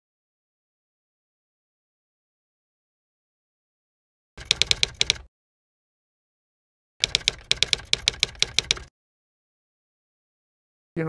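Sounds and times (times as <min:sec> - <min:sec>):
typewriter key clacks: 0:04.4 - 0:05.3, 0:07.0 - 0:08.9.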